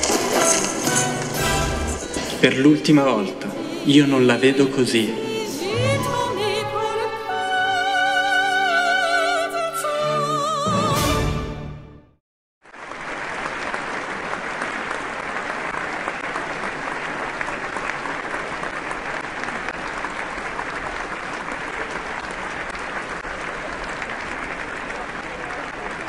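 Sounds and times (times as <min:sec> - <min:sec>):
audience applause: 0:00.0 - 0:03.2, 0:12.6 - 0:26.0.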